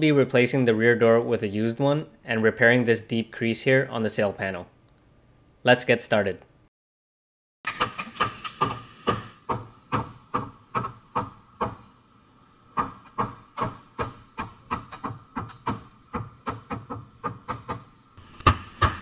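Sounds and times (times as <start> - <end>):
hammer striking sheet metal: 18.4 - 19.0.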